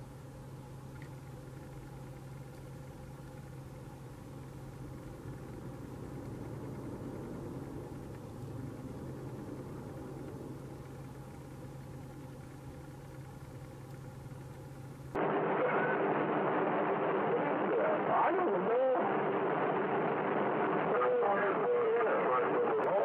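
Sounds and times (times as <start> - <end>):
low hum: 0.0 - 23.0
noisy rumble: 0.0 - 23.0.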